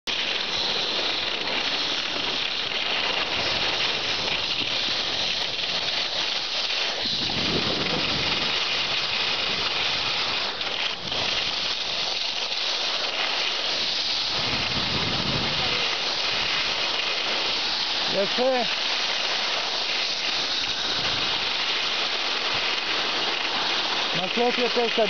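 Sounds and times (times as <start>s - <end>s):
skis sliding on snow: 0.1s - 25.0s
wind over microphone: 3.2s - 12.4s, 13.1s - 18.8s, 19.6s - 21.7s.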